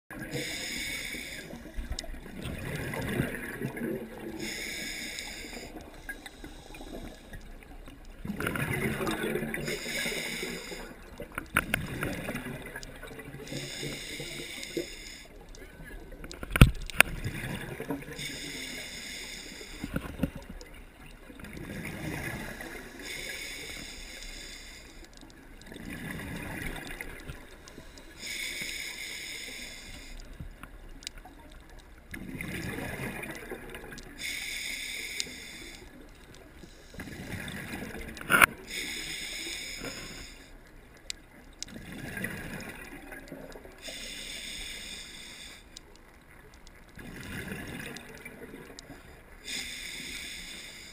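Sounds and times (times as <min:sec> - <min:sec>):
diver breathing through regulator: 0:00.2 - 0:01.8, 0:04.3 - 0:07.4, 0:09.0 - 0:11.0, 0:13.4 - 0:15.4, 0:18.2 - 0:20.0, 0:21.9 - 0:25.1, 0:26.0 - 0:30.3, 0:34.2 - 0:35.9, 0:36.6 - 0:40.6, 0:43.8 - 0:45.8, 0:49.4 - 0:50.9
gurgle of exhaled bubbles: 0:01.8 - 0:04.6, 0:08.2 - 0:09.9, 0:32.1 - 0:34.0, 0:47.0 - 0:48.7.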